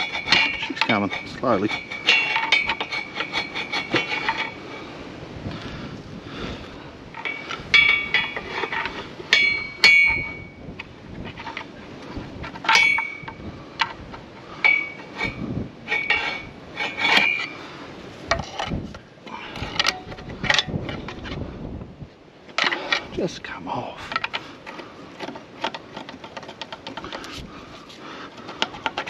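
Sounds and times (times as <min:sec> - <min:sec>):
pry bar metal clinks and knocks: 0:00.0 - 0:04.6, 0:07.2 - 0:10.6, 0:12.4 - 0:14.0, 0:14.6 - 0:17.5.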